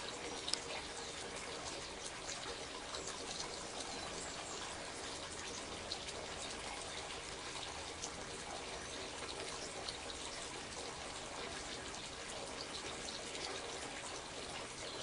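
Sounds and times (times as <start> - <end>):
water trickling and splashing: 0.0 - 15.0
small ticks: 0.2 - 1.0.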